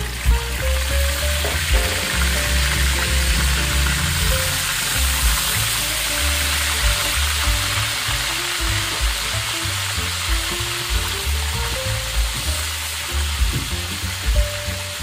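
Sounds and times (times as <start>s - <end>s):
background music: 0.0s - 15.0s
fish deep-frying in oil: 0.0s - 15.0s.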